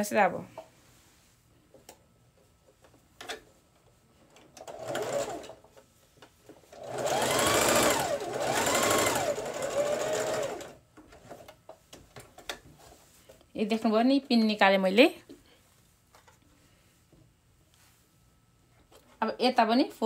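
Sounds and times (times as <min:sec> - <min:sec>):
electric sewing machine stitching: 0:04.6 - 0:05.6, 0:06.8 - 0:10.8.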